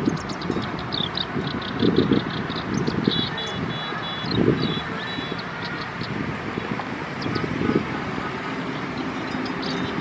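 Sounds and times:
bird singing high notes: 0:00.0 - 0:06.1
wind buffeting microphone: 0:00.0 - 0:10.0.

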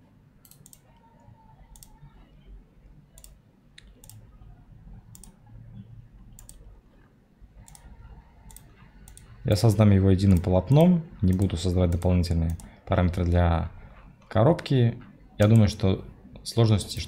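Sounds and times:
computer mouse clicking: 0:00.4 - 0:02.2, 0:03.1 - 0:04.3, 0:05.0 - 0:05.4, 0:06.2 - 0:12.8.

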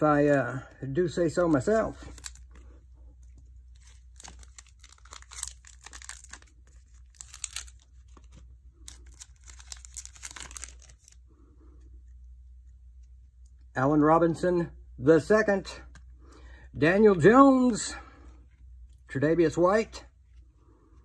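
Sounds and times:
foil wrapper crackling: 0:01.3 - 0:02.8, 0:03.7 - 0:11.2.

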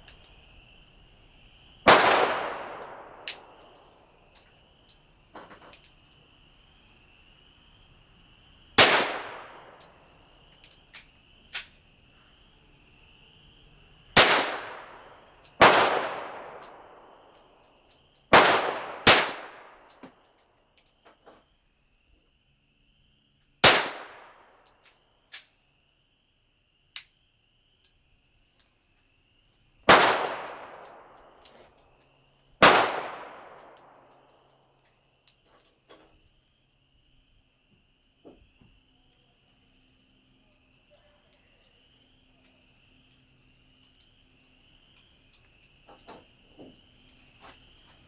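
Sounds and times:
insect chirring: 0:00.0 - 0:48.0
revolver gunshots: 0:01.8 - 0:03.6, 0:08.8 - 0:09.8, 0:14.2 - 0:17.0, 0:18.3 - 0:19.8, 0:23.6 - 0:24.5, 0:29.9 - 0:31.2, 0:32.6 - 0:34.0.

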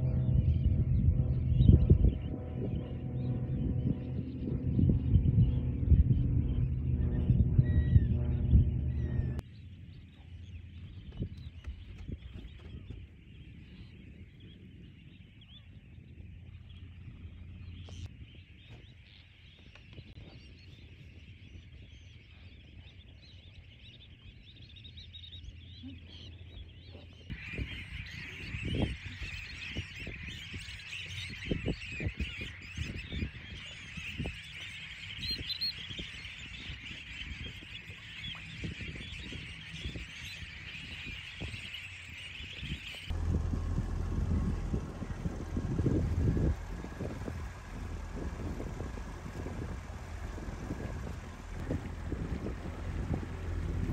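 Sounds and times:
low rumble: 0:00.0 - 0:13.9, 0:14.6 - 0:18.1, 0:42.7 - 0:53.9
gulls and shorebirds calling: 0:00.0 - 0:53.9.

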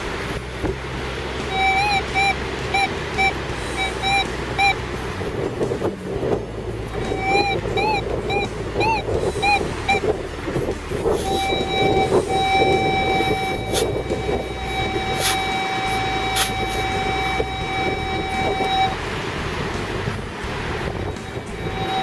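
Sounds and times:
wind noise: 0:00.0 - 0:22.0
metal detector tone: 0:01.5 - 0:04.8, 0:07.0 - 0:10.1, 0:11.1 - 0:19.0, 0:21.1 - 0:22.0
shovel digging sand: 0:15.2 - 0:15.4, 0:16.3 - 0:16.8.

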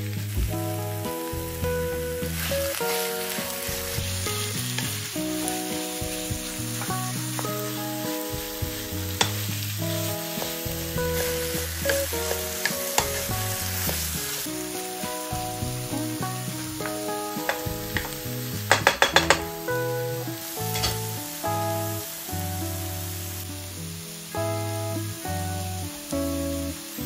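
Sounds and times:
food sizzling in frying pan: 0:00.0 - 0:27.0
soft background music: 0:00.0 - 0:27.0
utensil clicking against pan: 0:16.8 - 0:19.5.

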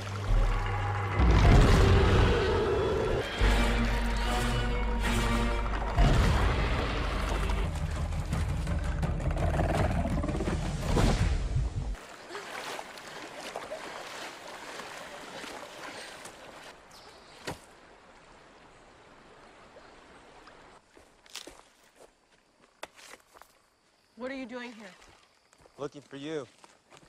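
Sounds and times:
rushing river water: 0:11.9 - 0:21.8.

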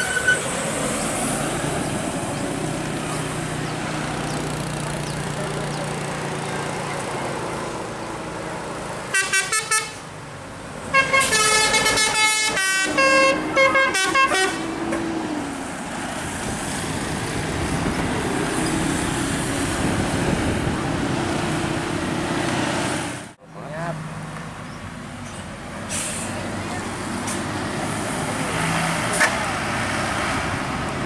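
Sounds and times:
bus engine and road noise: 0:00.0 - 0:31.0
musical bus horn: 0:09.1 - 0:10.0, 0:10.9 - 0:14.7.

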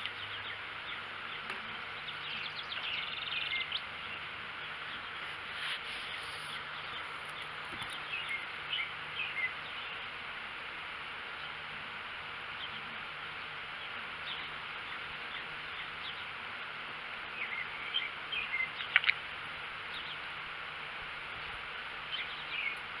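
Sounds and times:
bird chirps: 0:00.0 - 0:10.1, 0:17.3 - 0:19.2, 0:22.1 - 0:22.8
insect chorus: 0:00.0 - 0:23.0.

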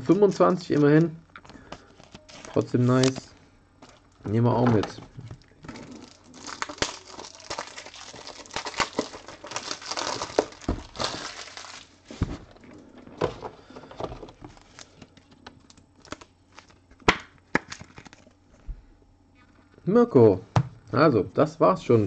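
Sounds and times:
packaging crinkling: 0:00.4 - 0:12.8, 0:13.6 - 0:18.4.

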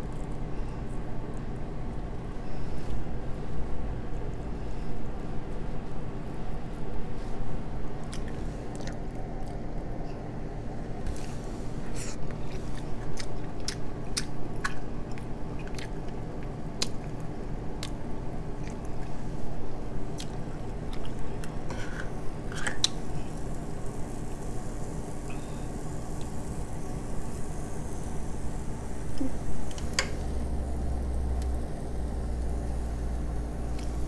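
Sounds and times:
low steady hum: 0:00.0 - 0:34.0
close chewing: 0:12.0 - 0:18.0, 0:18.6 - 0:19.2, 0:20.1 - 0:21.6.

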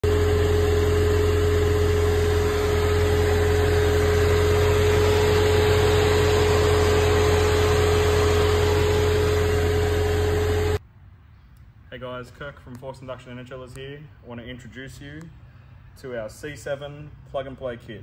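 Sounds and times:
car engine idling: 0:00.0 - 0:10.8
supercharger whine: 0:00.0 - 0:10.8.

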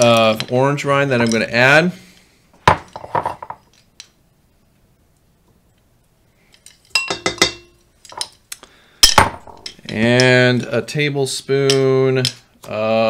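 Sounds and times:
spoon clinking against bowls: 0:06.9 - 0:07.8.

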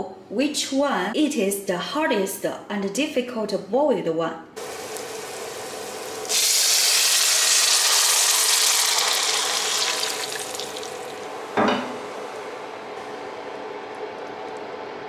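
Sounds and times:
water pouring into a pot: 0:04.6 - 0:11.2.

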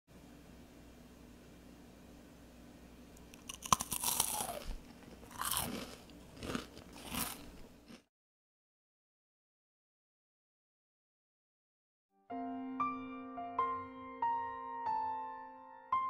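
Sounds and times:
crunchy rusk being chewed: 0:03.2 - 0:08.1.

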